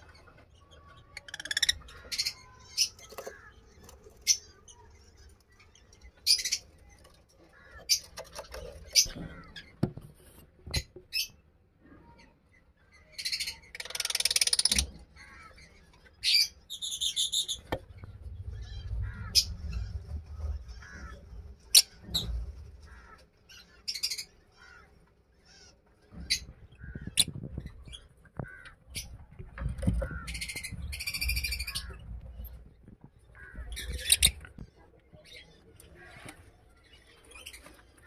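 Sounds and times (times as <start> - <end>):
lovebirds chirping and squawking: 0.0 - 38.0.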